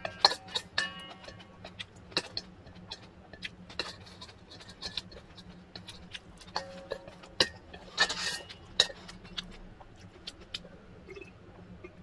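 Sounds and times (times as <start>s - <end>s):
metal spoon scraping bowl: 0.0s - 9.6s
steady low hum: 0.0s - 12.0s.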